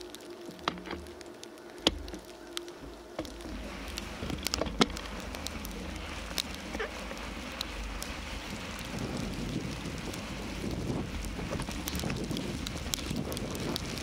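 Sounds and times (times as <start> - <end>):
bicycle tyres rolling through snow: 0.0 - 14.0
sharp clicks and knocks: 0.4 - 8.1
wind rumble on microphone: 1.8 - 14.0.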